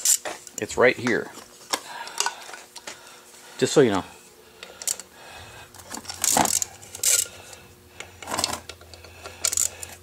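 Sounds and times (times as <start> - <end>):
metal parts clinking and rattling: 5.8 - 7.4, 8.2 - 10.0.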